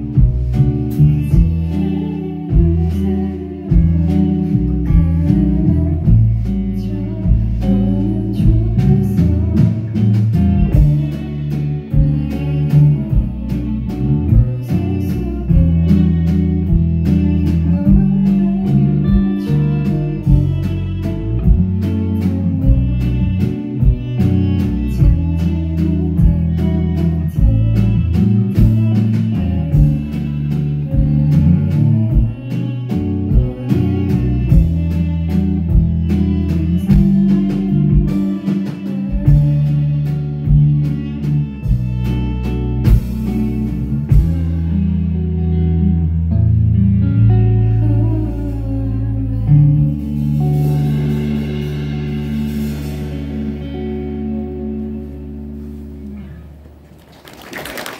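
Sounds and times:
steady drum beat: 0.0s - 44.7s
deep bass notes: 0.0s - 57.0s
electric guitar playing: 0.0s - 57.9s.

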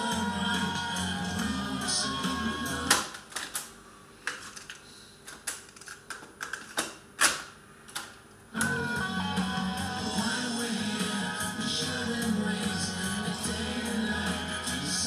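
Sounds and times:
tape music from speakers: 0.0s - 3.1s, 8.6s - 15.0s.

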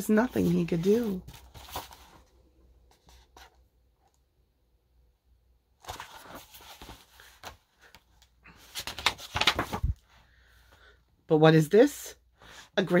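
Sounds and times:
paper rustling: 0.0s - 3.6s, 5.8s - 10.2s.

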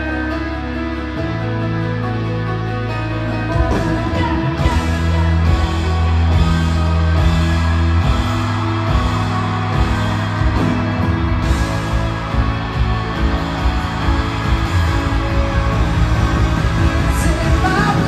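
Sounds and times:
drums: 0.0s - 18.0s
guitar: 0.0s - 18.0s
live pop-rock band: 0.0s - 18.0s.

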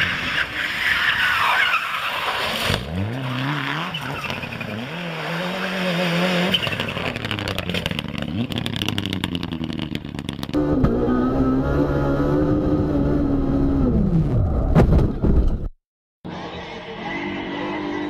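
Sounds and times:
rally car engine revving: 2.5s - 14.8s, 16.3s - 18.0s.

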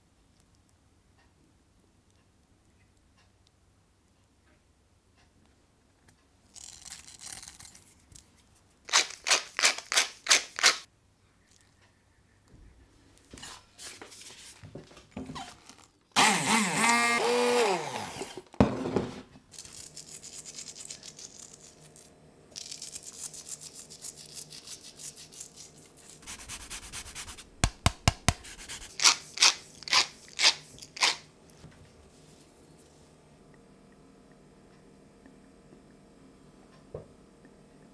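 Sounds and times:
hand blender running: 16.2s - 18.4s
blender switch click: 16.3s - 17.2s
seasoning rubbed onto meat: 19.6s - 22.0s, 22.6s - 30.8s.

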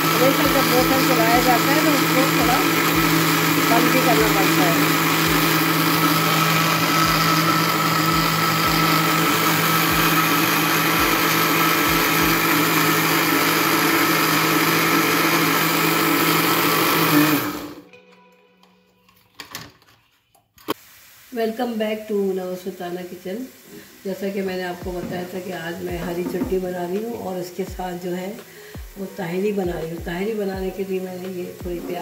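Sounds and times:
electric blender grinding: 0.0s - 17.8s.

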